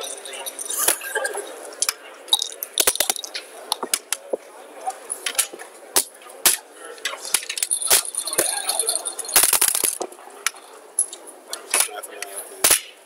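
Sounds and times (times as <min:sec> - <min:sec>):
checkers clacking on board: 0:00.0 - 0:04.2, 0:07.1 - 0:10.6.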